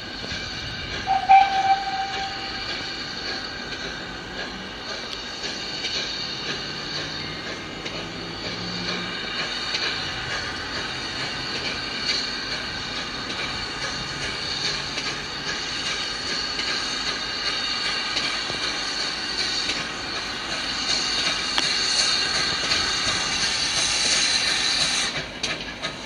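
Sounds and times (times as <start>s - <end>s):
diesel locomotive engine idling: 0.0s - 26.0s
high whine: 1.0s - 4.2s.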